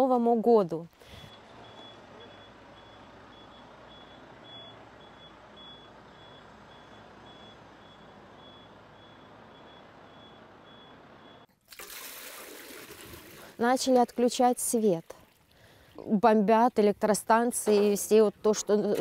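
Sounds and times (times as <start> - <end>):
diesel engine rumble: 1.0 - 11.5
reversing alarm beeping: 1.1 - 11.5.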